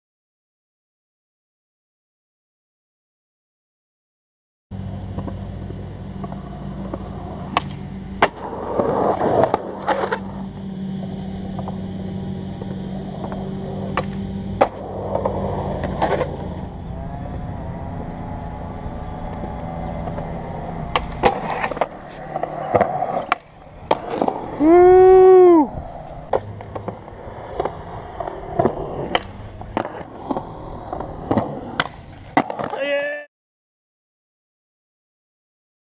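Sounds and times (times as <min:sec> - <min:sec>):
skateboard wheels rolling on concrete: 0:04.7 - 0:33.3
rough skateboard scraping: 0:04.8 - 0:32.8
skateboard popping and landing clacks: 0:05.0 - 0:10.4, 0:12.5 - 0:16.7, 0:19.2 - 0:24.7, 0:26.3 - 0:32.8.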